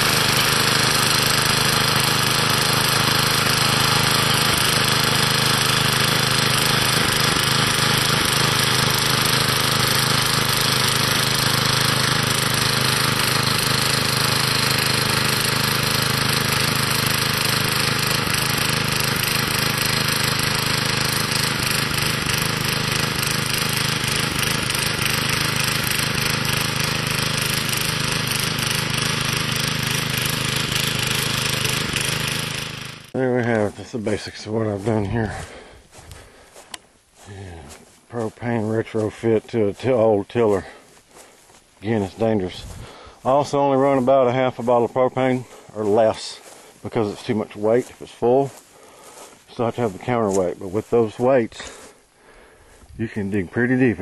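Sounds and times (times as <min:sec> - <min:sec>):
tiller engine running: 0:00.0 - 0:54.0.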